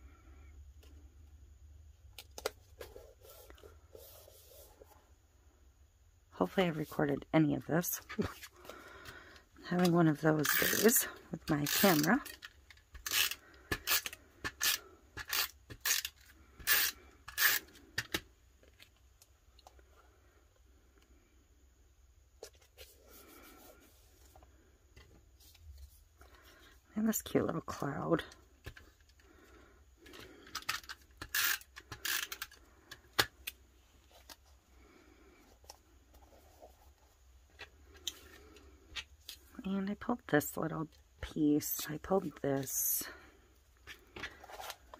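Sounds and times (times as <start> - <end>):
tape runner scraping on paper: 13.0 - 17.8.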